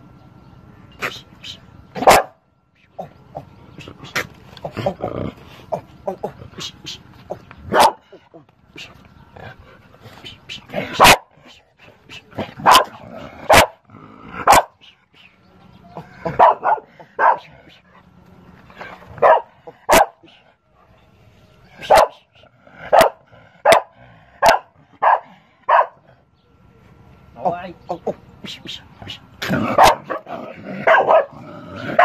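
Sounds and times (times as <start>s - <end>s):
dog barking: 2.0s - 2.4s, 7.7s - 8.2s, 10.9s - 11.3s, 12.6s - 13.8s, 14.4s - 14.8s, 16.2s - 17.6s, 19.2s - 20.3s, 21.8s - 22.3s, 22.9s - 26.1s, 29.7s - 31.4s.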